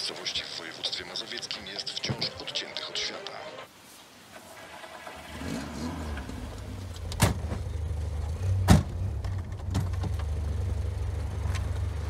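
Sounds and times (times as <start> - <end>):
car engine droning inside cabin: 5.3 - 12.0.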